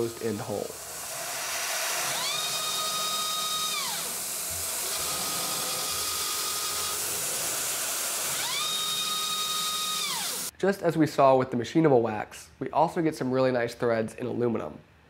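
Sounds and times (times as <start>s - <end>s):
steady hiss: 0.0s - 1.8s
mill spindle motor whine: 0.7s - 10.5s.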